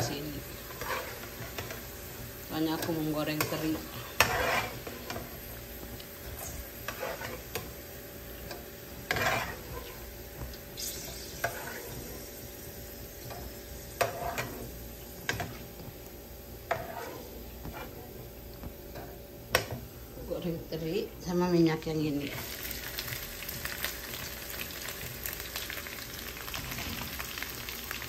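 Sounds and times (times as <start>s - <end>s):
metal spatula scraping a wok: 0.0s - 1.9s, 2.7s - 5.5s, 6.2s - 7.7s, 8.5s - 10.1s, 10.8s - 12.4s, 13.2s - 15.8s, 16.7s - 18.2s
oil sizzling: 0.0s - 28.0s.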